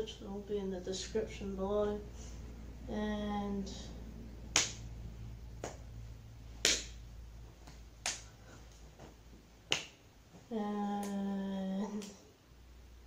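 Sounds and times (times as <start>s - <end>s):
person humming low note: 10.5s - 12.0s.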